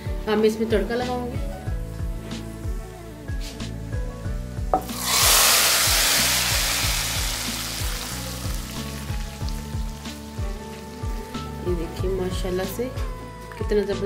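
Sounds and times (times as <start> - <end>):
background music with steady beat: 0.0 - 14.0
hot oil sizzling in a pot: 4.8 - 11.5.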